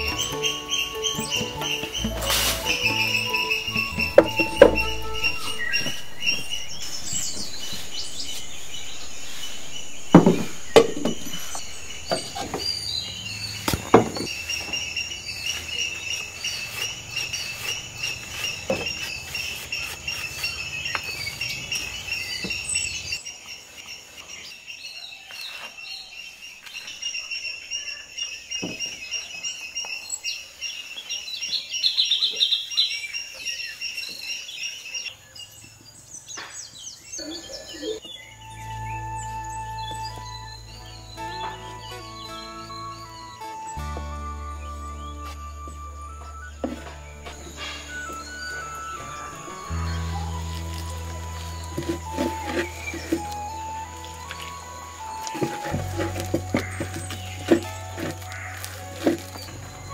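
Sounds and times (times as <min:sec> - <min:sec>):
insects chirring: 0:00.0 - 0:32.0, 0:44.8 - 0:59.9
bird calls: 0:00.0 - 0:59.9.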